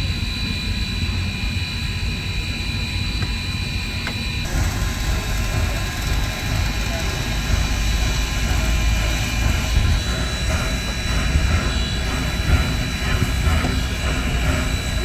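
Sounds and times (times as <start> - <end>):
steam hissing: 4.4 - 15.0
steam locomotive rumbling: 4.4 - 15.0.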